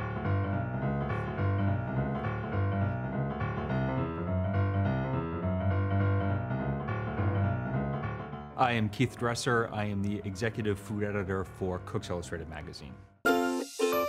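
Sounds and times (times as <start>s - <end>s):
steady bass: 0.0s - 8.8s
keyboard notes: 0.0s - 12.4s.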